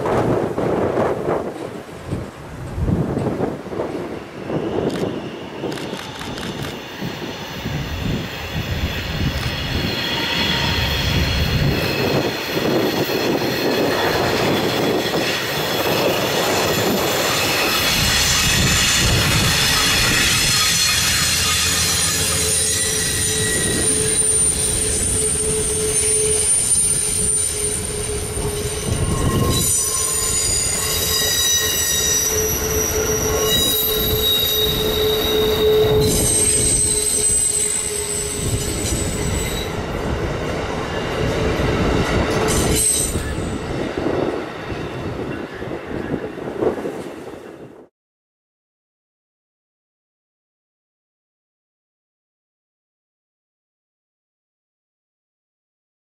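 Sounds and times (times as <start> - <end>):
wheels rumbling on rails: 0.0 - 47.8
train wheels squealing: 4.0 - 40.0, 40.7 - 46.2.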